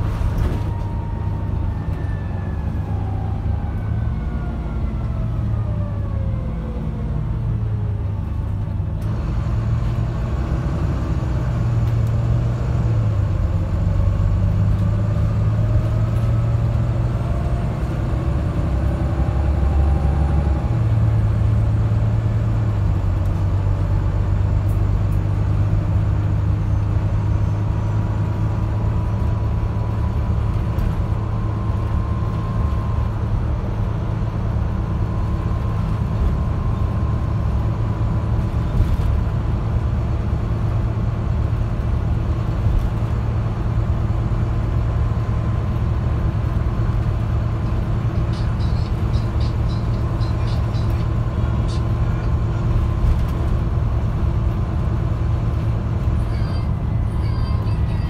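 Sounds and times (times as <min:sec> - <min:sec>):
bus engine drone: 0:00.0 - 0:58.0
road noise: 0:00.0 - 0:58.0.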